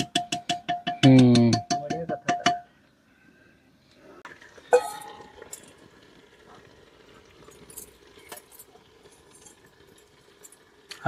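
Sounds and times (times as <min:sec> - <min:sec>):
ladle clinking metal pot rim: 0:04.7 - 0:05.8.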